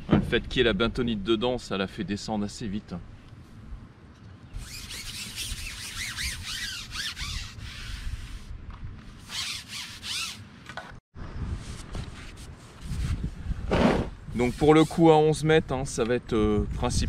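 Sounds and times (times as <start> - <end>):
rubbing and scraping: 4.6 - 8.5, 9.1 - 10.5, 11.6 - 15.1.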